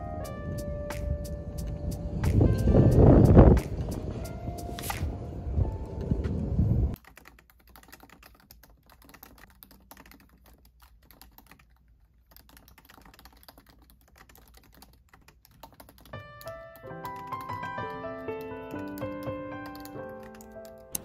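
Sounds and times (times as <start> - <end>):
fingers typing on laptop keyboard: 6.9 - 21.0.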